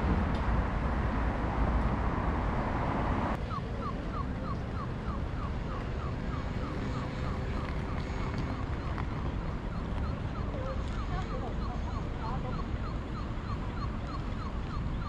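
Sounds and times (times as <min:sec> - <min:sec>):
pedestrian crossing chirps: 0:00.0 - 0:15.0
street traffic passing: 0:00.0 - 0:15.0.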